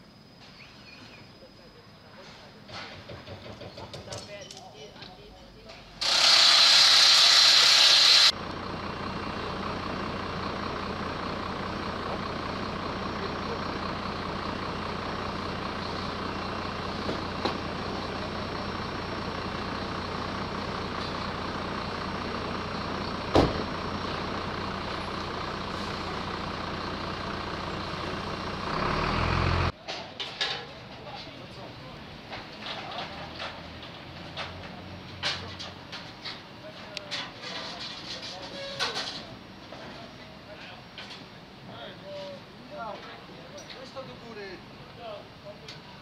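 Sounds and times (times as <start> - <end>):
loud hiss: 6.0 - 8.4.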